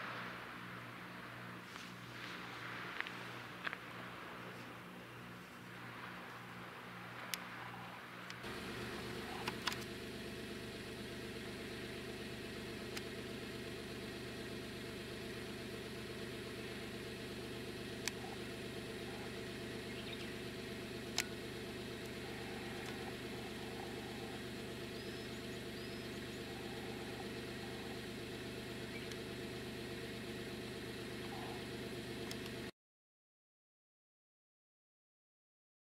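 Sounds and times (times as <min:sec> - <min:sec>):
sharp clicks: 0:08.3 - 0:10.0, 0:18.0 - 0:18.4, 0:21.0 - 0:21.4, 0:22.0 - 0:23.8, 0:28.8 - 0:29.3, 0:32.2 - 0:32.7
boat diesel engine idling: 0:08.4 - 0:32.7.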